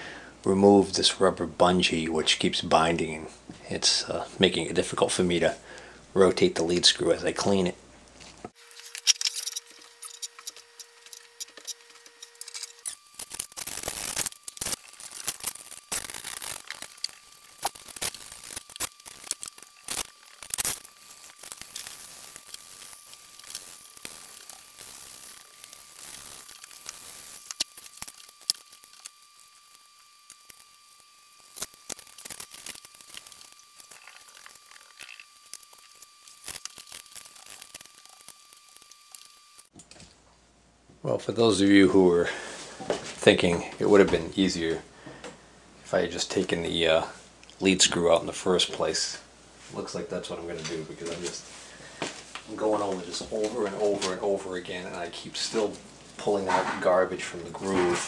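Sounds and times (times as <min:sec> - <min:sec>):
metal pick scratching and clicking: 0:08.8 - 0:30.8, 0:31.4 - 0:39.7.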